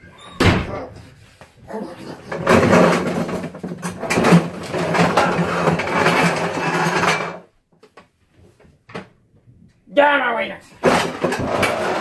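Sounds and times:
metal chair scraping across floor: 0:01.7 - 0:07.5, 0:10.9 - 0:12.0.

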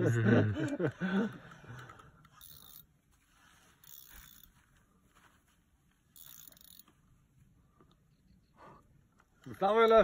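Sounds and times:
fishing reel whirring: 0:01.8 - 0:04.6, 0:06.1 - 0:07.0.

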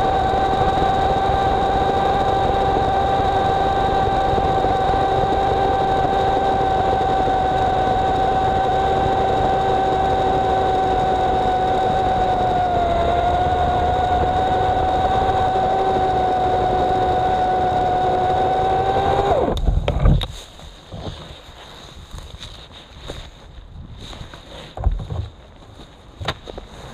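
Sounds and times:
chainsaw cutting wood: 0:00.0 - 0:20.2.

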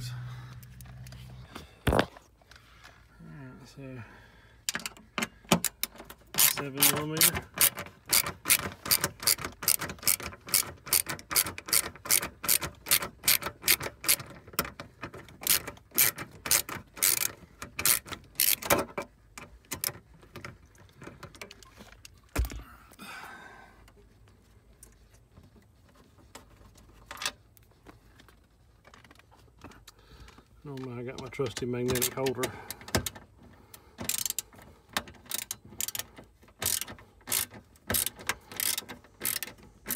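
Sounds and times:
ratcheting driver clicking: 0:04.7 - 0:14.4, 0:15.3 - 0:18.8, 0:34.0 - 0:34.5, 0:35.2 - 0:39.9.

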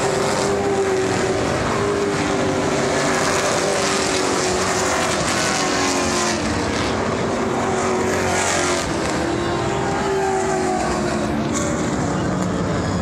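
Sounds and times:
race car engines passing: 0:00.0 - 0:13.0.

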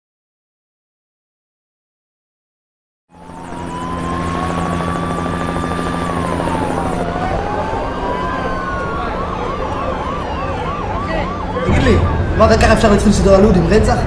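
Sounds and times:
emergency vehicle siren: 0:03.1 - 0:14.0
steady low drone: 0:03.1 - 0:14.0.

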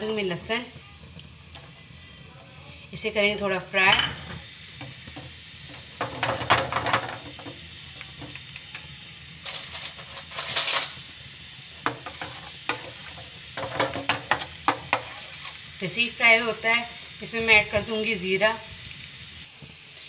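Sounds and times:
garlic sizzling in hot oil: 0:00.0 - 0:20.0
metal spoon scraping pan: 0:11.9 - 0:15.6.

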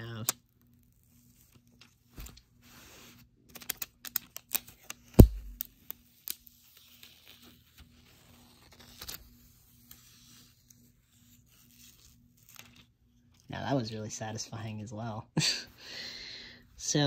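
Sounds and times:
plastic film peeling and crackling: 0:03.5 - 0:13.5.

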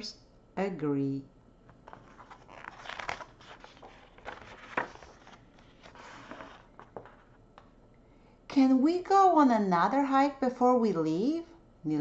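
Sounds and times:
paper page rustling: 0:01.8 - 0:07.4.

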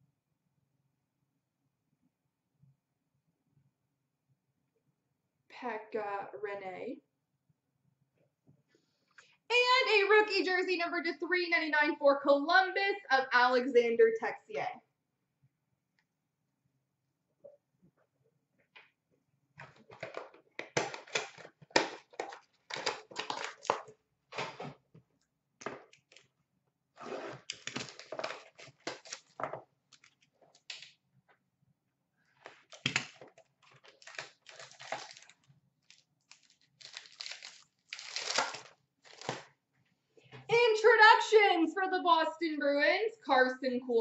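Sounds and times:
packaging rustling and tearing: 0:19.7 - 0:24.6, 0:27.0 - 0:30.9, 0:32.4 - 0:39.5.

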